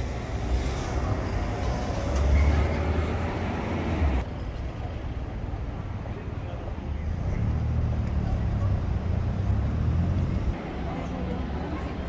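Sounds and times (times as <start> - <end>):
city street noise: 0.0 - 12.0
vehicle passing with low rumble: 7.0 - 10.6.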